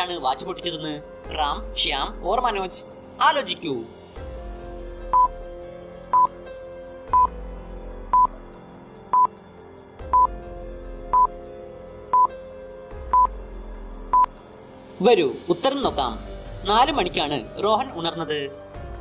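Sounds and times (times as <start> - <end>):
soft background music: 0.0 - 19.0
short electronic beeps: 5.1 - 5.3, 6.1 - 6.3, 7.1 - 7.3, 11.1 - 11.3, 12.1 - 12.3, 13.1 - 13.3.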